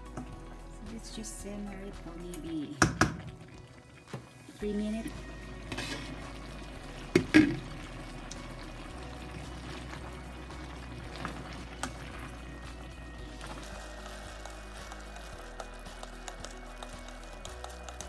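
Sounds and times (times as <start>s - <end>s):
food simmering in a pan: 2.8s - 18.0s
glass lid knocking on pan: 7.2s - 7.6s.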